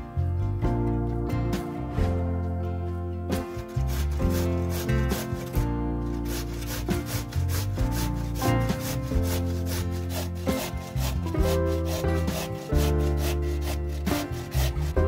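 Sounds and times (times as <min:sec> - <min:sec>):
background music: 0:00.0 - 0:15.0
potato grating on metal grater: 0:03.5 - 0:15.0.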